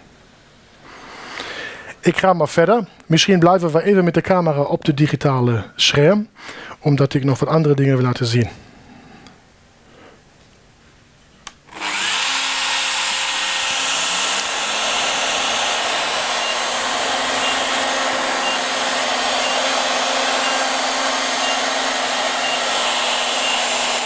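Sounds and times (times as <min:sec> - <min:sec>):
router and dust extractor running: 0:11.7 - 0:24.0.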